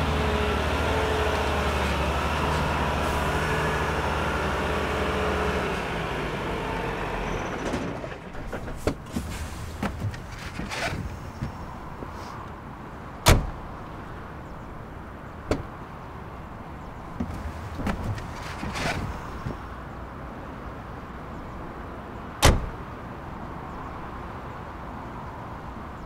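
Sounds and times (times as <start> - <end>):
truck doors slamming: 7.4 - 12.1, 13.2 - 13.7, 15.4 - 15.7, 17.2 - 19.7, 22.4 - 22.8.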